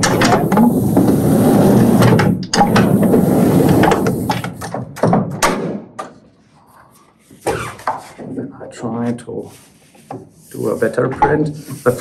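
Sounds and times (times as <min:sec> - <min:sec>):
proof press rollers and gears clattering: 0:00.0 - 0:05.6.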